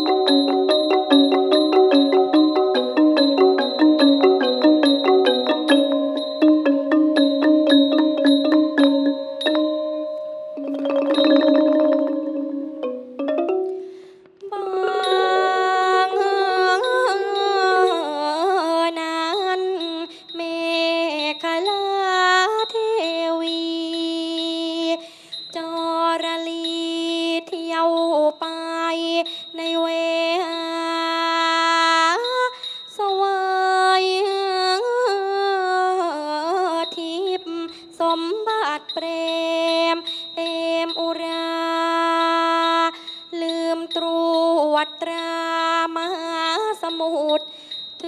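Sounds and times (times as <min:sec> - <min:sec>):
person singing long wavering notes: 0:00.0 - 0:10.0, 0:14.5 - 0:18.9.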